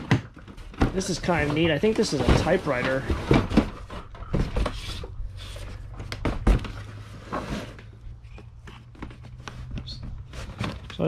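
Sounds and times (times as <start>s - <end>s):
hard case knocking and clattering: 0.0s - 4.9s, 5.8s - 7.0s.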